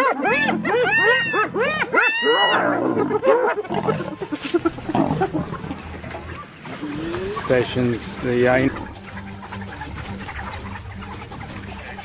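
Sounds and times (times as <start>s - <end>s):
hyenas giggling: 0.0s - 12.0s
growls and snarls: 2.3s - 5.9s.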